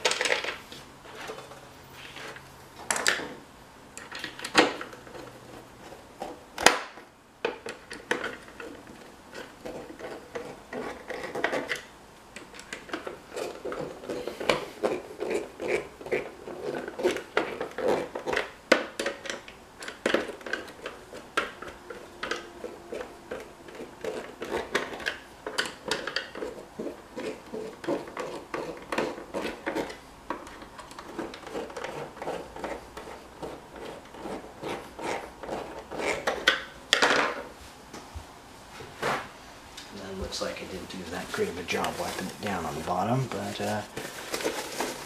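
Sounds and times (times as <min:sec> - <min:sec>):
screwdriver clicks and scrapes: 0:07.5 - 0:36.7.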